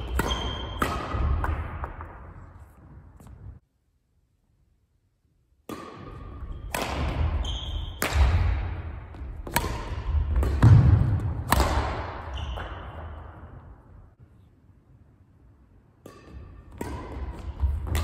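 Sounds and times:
rackets hitting shuttlecock: 0.0 - 3.5, 5.6 - 13.8, 15.9 - 18.0
sneakers squeaking: 0.0 - 3.6, 6.0 - 13.8.

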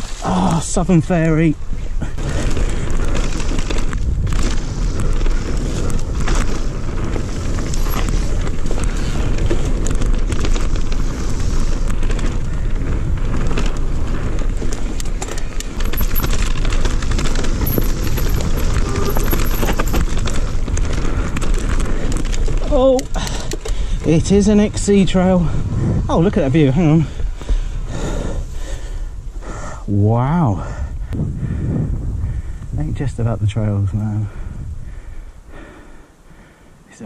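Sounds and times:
bike tyre rumble: 0.0 - 36.8
bike clicks and rattles: 1.1 - 25.3
wind buffeting microphone: 1.3 - 36.5.

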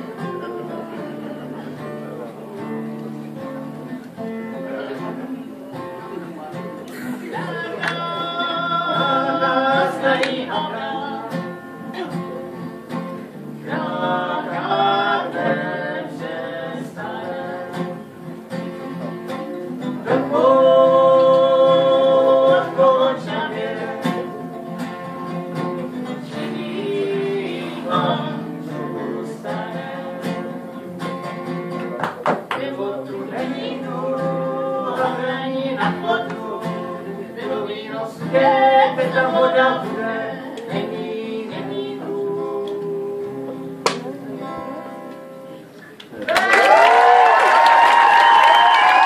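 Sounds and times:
acoustic guitars: 0.0 - 49.0
person singing: 6.9 - 12.6, 13.5 - 18.2, 19.7 - 24.8, 26.0 - 30.9, 32.6 - 45.3.

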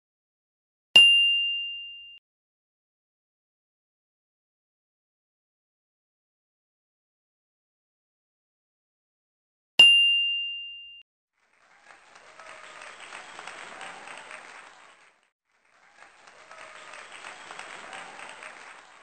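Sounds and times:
bright chime ding: 1.0 - 2.2, 9.8 - 11.0
recorded applause: 11.4 - 19.0.

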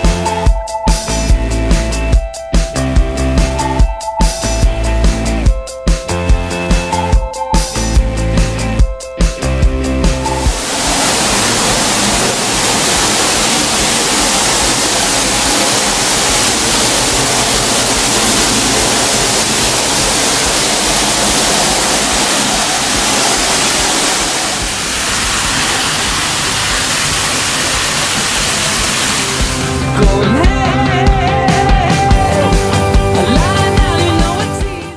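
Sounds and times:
water gushing from pipe: 10.2 - 30.0.

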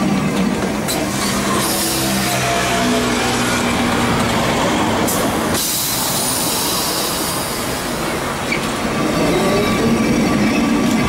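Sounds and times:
tram and street rumbling: 0.0 - 11.0.

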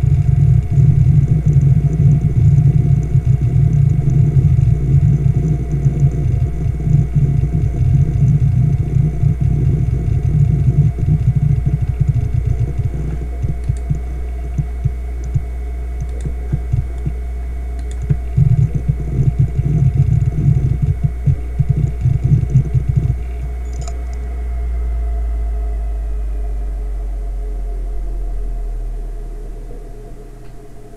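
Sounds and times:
hard drive heads chattering: 0.0 - 24.2
hard drive spindle hum: 0.0 - 30.9.

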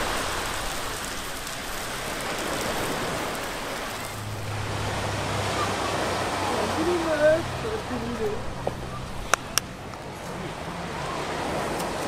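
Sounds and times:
low steady hum: 3.6 - 10.6.

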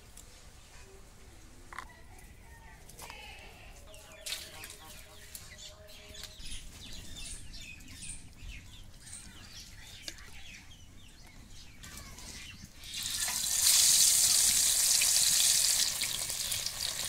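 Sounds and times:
small birds chirping: 0.2 - 13.6.

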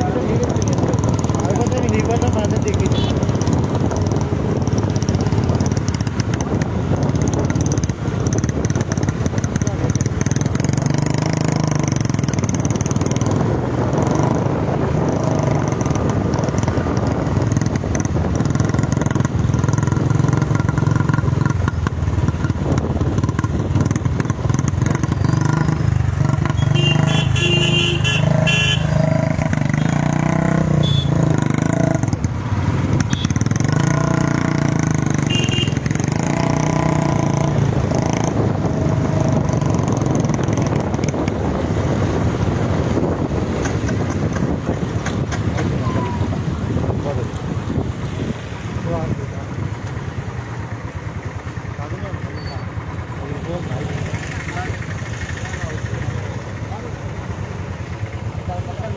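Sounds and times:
motorcycle engines running: 0.0 - 58.9
horn honking: 26.4 - 30.0, 30.7 - 31.4, 33.1 - 34.1, 35.2 - 35.9.

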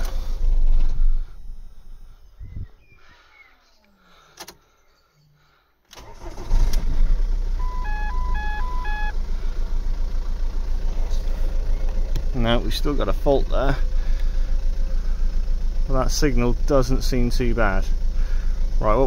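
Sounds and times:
car engine cranking and idling: 0.0 - 19.0
two-note warning chime: 7.6 - 9.1.

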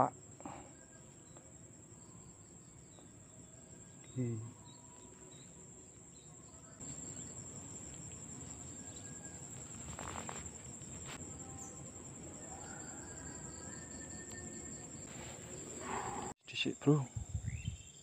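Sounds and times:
high insect trill: 0.0 - 18.0
short rustle: 7.8 - 11.2, 15.1 - 16.3.

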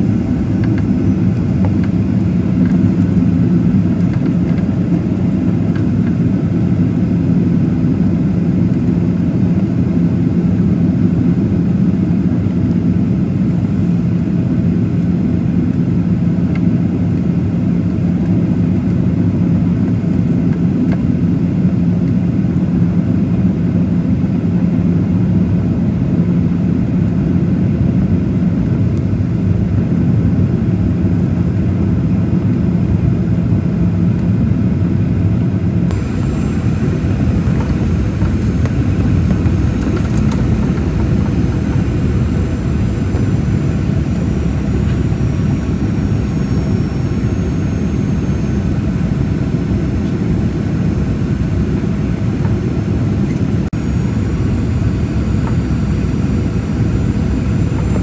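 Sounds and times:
low hum: 0.0 - 11.6, 29.0 - 58.0
jet engine drone: 0.0 - 58.0
rushing airflow: 35.9 - 58.0.

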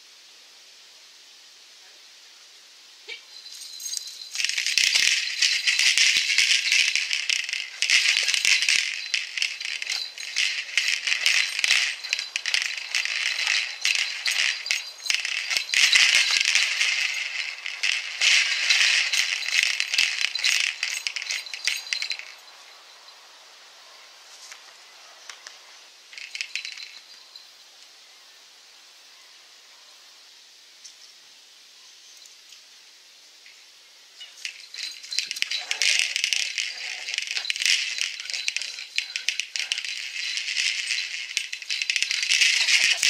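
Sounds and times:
dense high rattling: 3.4 - 22.6, 26.2 - 27.0, 34.2 - 43.0.

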